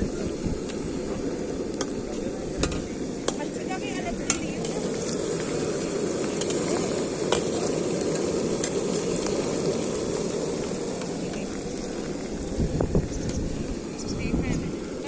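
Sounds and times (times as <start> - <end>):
food deep-frying in hot oil: 0.0 - 15.0.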